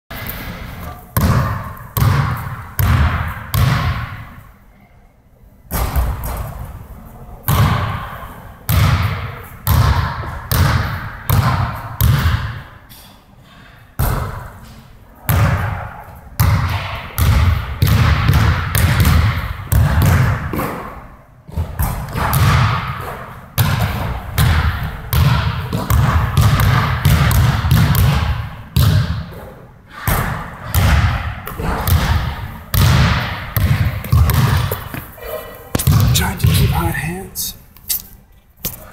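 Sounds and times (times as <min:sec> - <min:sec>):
basketball bouncing on gym floor: 0:00.1 - 0:04.3, 0:07.5 - 0:08.1, 0:08.7 - 0:12.6, 0:14.0 - 0:14.5, 0:15.3 - 0:15.8, 0:16.4 - 0:20.9, 0:21.5 - 0:29.4, 0:30.0 - 0:36.9
basketball hitting rim and backboard: 0:00.1 - 0:04.4, 0:05.7 - 0:06.6, 0:07.5 - 0:12.7, 0:14.0 - 0:14.6, 0:15.3 - 0:15.8, 0:16.4 - 0:36.9.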